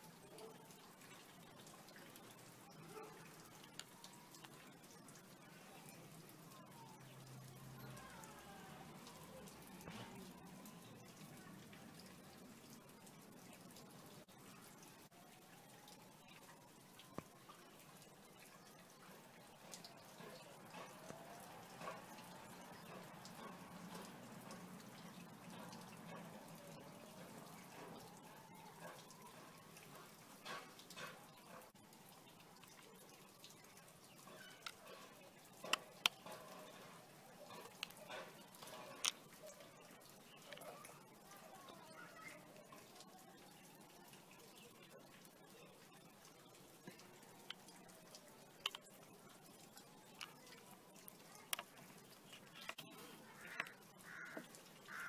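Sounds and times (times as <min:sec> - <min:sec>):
small clicks: 0:50.1 - 0:55.0.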